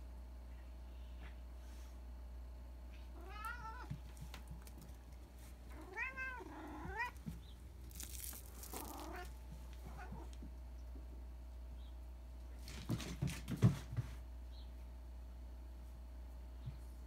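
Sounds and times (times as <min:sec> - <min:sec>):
cat meowing: 0:03.2 - 0:03.9, 0:05.7 - 0:07.2, 0:08.8 - 0:09.3.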